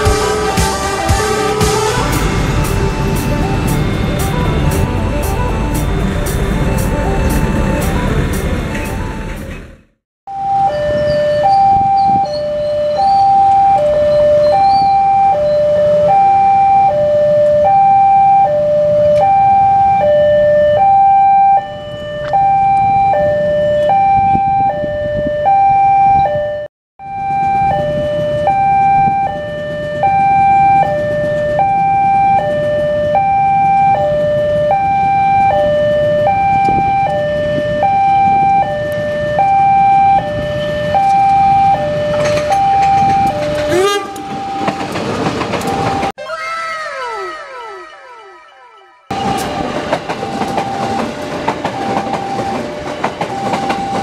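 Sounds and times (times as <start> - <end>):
low rumble: 0.0 - 10.0
level crossing two-tone chime: 46.4 - 49.4.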